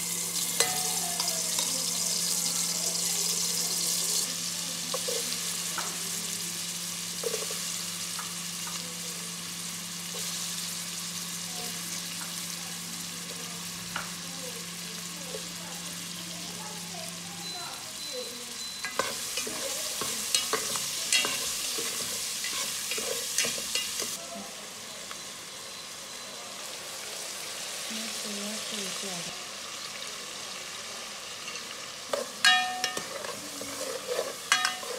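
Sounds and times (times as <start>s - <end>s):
vegetables sizzling in hot oil: 0.0s - 34.9s
spoon clinking and scraping pot: 0.4s - 2.0s, 4.9s - 5.4s, 7.2s - 8.8s, 18.6s - 24.2s, 31.4s - 34.9s.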